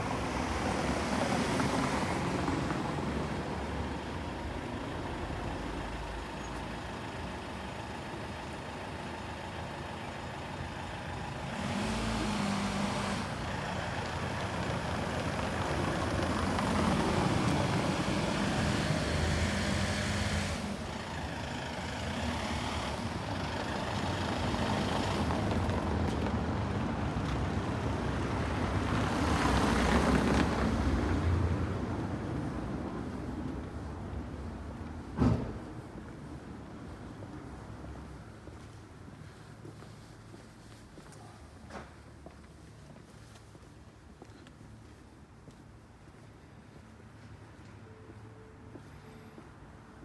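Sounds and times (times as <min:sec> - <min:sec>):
car following: 0:00.0 - 0:40.8
van engine running: 0:03.6 - 0:26.2.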